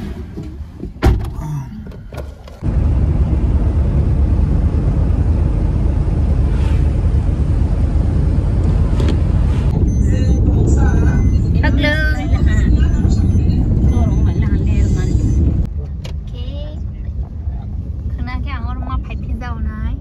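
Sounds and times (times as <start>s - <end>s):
thump: 0.0s - 1.4s
car road and wind noise: 0.0s - 20.0s.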